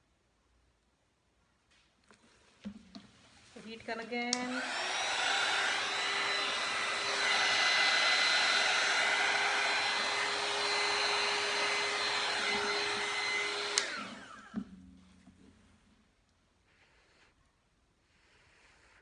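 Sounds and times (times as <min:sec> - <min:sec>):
heat gun blowing air with whine: 0:04.2 - 0:14.8
motor winding down: 0:04.4 - 0:14.6.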